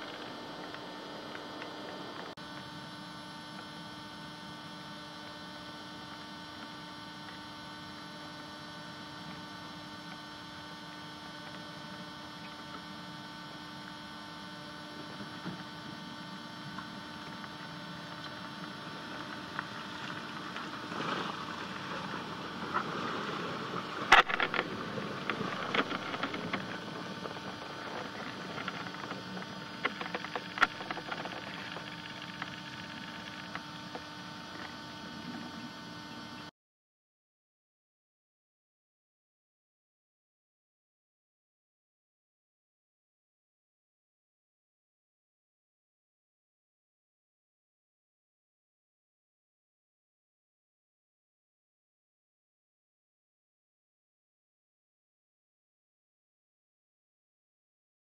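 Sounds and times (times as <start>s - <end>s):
electrical hum with hiss: 0.0s - 36.5s
crackling: 19.0s - 33.6s.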